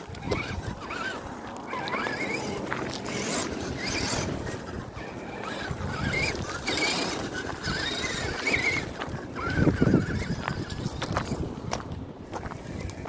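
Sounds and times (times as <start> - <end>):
toy car electric motor whining: 0.0 - 11.7
tyres crunching over rocks: 0.0 - 13.0.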